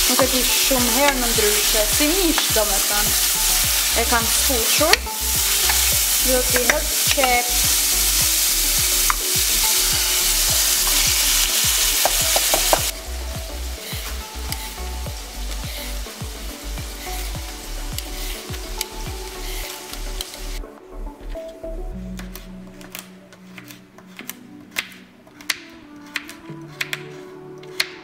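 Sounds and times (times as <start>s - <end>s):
meat sizzling in a pan: 0.0s - 20.6s
faint background music: 0.0s - 28.0s.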